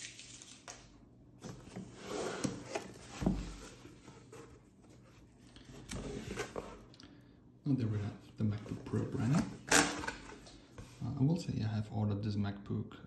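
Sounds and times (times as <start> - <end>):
cardboard rustling and scraping: 1.4 - 6.9.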